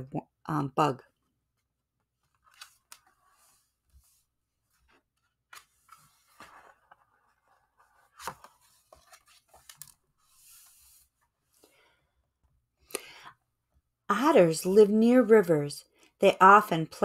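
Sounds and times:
book pages rustling: 0:01.4 - 0:11.7.

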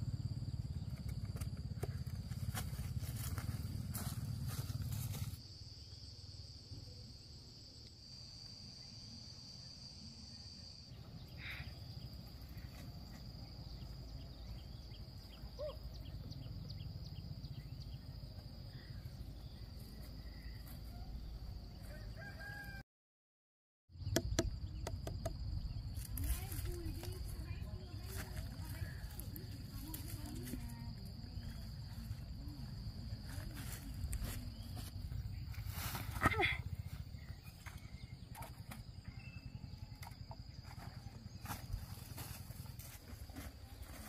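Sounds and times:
rooster crowing: 0:21.8 - 0:22.8.

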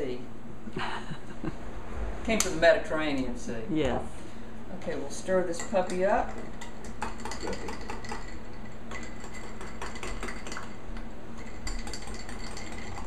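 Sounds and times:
spoon clinking against glass: 0:05.5 - 0:10.7, 0:11.4 - 0:13.0.

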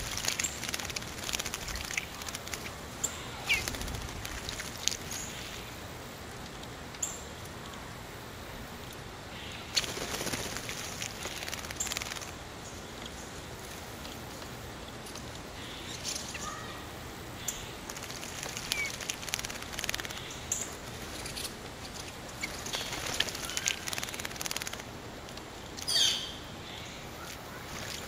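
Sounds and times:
birds splashing in water: 0:00.0 - 0:05.6, 0:09.6 - 0:12.4, 0:17.4 - 0:25.0, 0:27.1 - 0:28.0.

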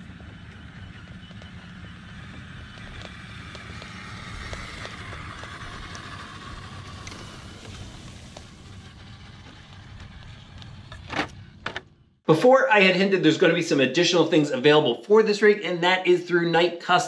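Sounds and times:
tyres clicking on grit: 0:00.0 - 0:12.0
rc car motor whining: 0:00.0 - 0:12.1
low rumble: 0:00.0 - 0:12.2.

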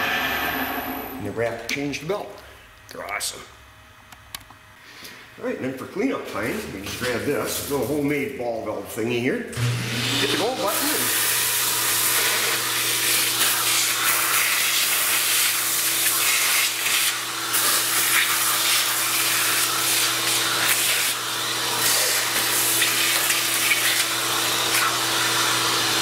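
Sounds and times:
vacuum sucking metal chips: 0:09.6 - 0:26.0.

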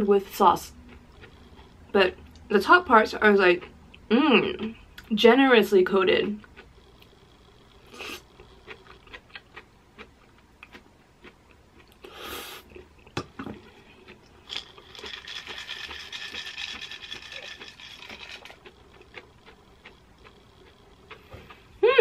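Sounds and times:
chewing with mouth clicks: 0:00.7 - 0:02.5, 0:03.3 - 0:04.0, 0:06.2 - 0:07.1, 0:07.8 - 0:21.7
nuts pattering onto pasta: 0:14.4 - 0:20.0.

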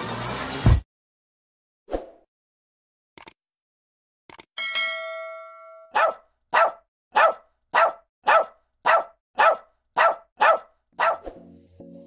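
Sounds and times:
ringing ding: 0:04.6 - 0:06.0
dog barking: 0:05.9 - 0:11.3.

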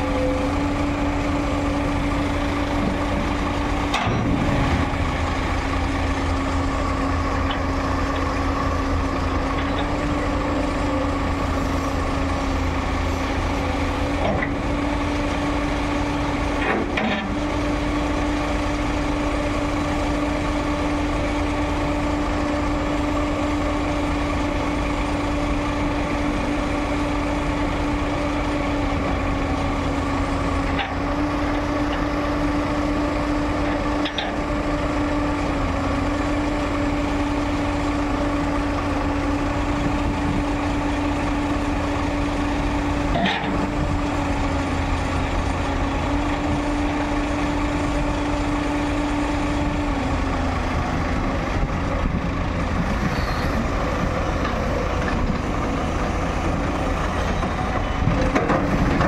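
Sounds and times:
excavator diesel engine running: 0:00.0 - 0:59.0.

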